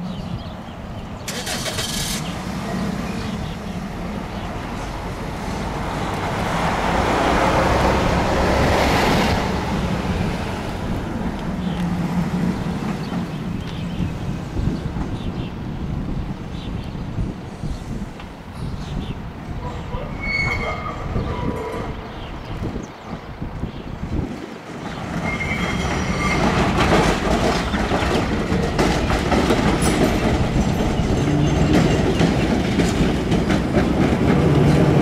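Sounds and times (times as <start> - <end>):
road traffic rumble: 0.0 - 35.0
vehicle passing: 1.3 - 13.0.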